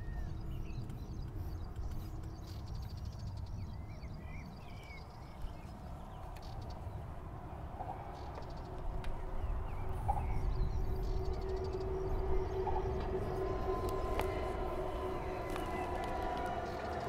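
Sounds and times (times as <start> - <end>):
engine running: 8.3 - 17.0.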